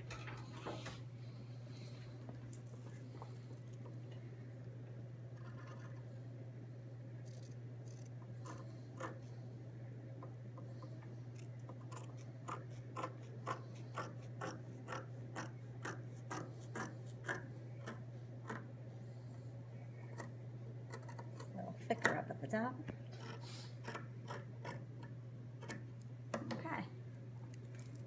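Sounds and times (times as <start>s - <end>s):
steady low hum: 0.0s - 28.0s
scissors snipping fabric: 11.4s - 18.6s.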